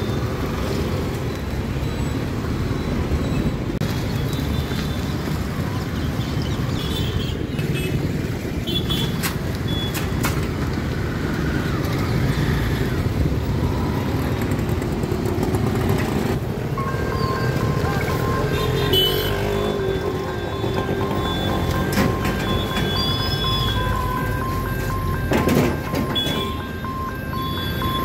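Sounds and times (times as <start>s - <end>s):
road traffic passing: 0.0s - 28.0s
short high-pitched tones: 16.8s - 28.0s.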